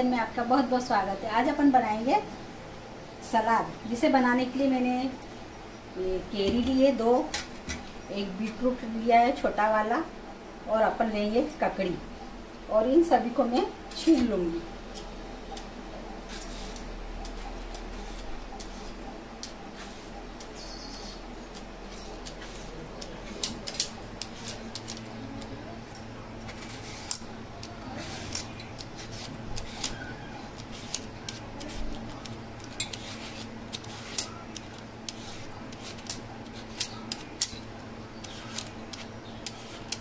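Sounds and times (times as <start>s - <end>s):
low steady hum: 0.0s - 40.0s
peeler scraping cucumber: 16.3s - 25.5s, 26.4s - 40.0s.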